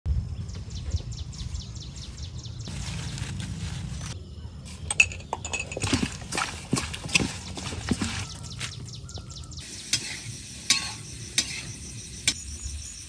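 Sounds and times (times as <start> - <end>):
clinks and knocks in metal bowl: 4.8 - 8.2
faint bird chirps: 8.2 - 10.0.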